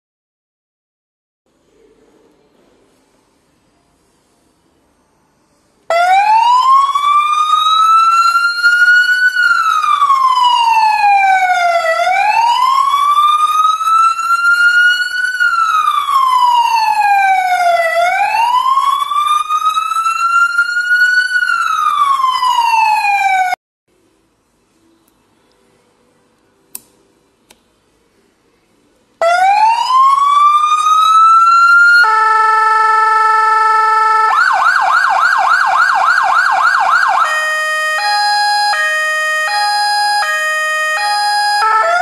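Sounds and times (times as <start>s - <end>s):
siren wailing: 5.9s - 23.6s, 29.2s - 42.0s.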